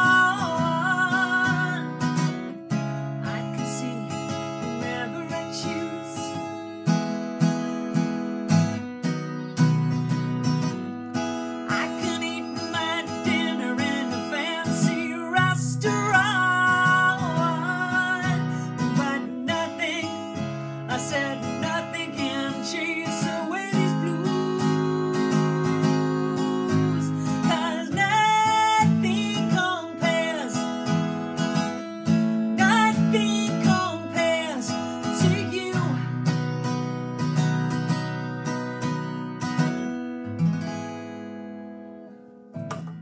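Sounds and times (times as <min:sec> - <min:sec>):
woman singing: 0:00.0 - 0:06.5, 0:11.7 - 0:30.7, 0:32.6 - 0:36.2
acoustic guitar strummed: 0:00.0 - 0:43.0.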